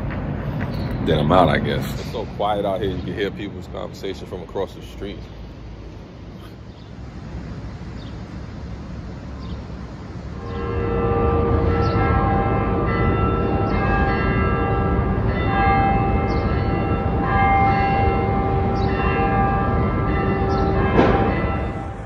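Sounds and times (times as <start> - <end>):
low street rumble: 0.0 - 22.0
church bells pealing: 1.0 - 5.3, 10.2 - 22.0.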